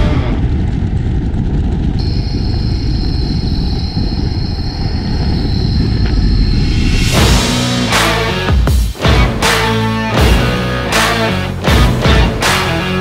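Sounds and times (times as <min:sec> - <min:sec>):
vehicle engine and road rumble: 0:00.0 - 0:08.0
thin high whine: 0:01.9 - 0:08.5.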